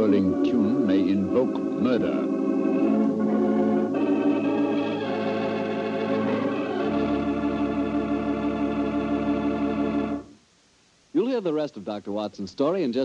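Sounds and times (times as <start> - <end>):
deep organ bass note: 0.0 - 10.3
organ playing held chords: 0.0 - 10.4.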